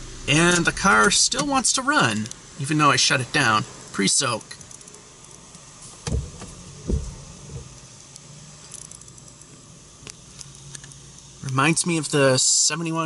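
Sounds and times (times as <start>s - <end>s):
faint steady hum: 0.0s - 13.0s
muffled low thumps: 6.0s - 7.8s.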